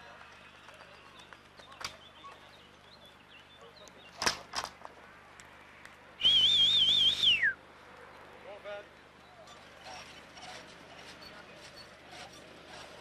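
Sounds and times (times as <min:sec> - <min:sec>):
warbling whistle: 0:06.2 - 0:07.6.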